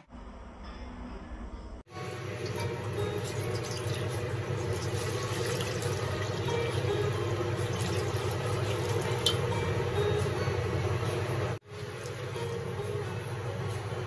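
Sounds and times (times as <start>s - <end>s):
low mechanical hum: 0.0s - 14.0s
water poured into metal wok: 2.3s - 7.0s, 7.6s - 9.5s.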